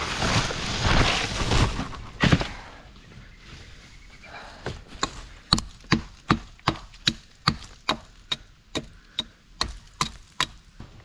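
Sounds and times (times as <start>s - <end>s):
axe chopping branch: 4.9s - 10.6s.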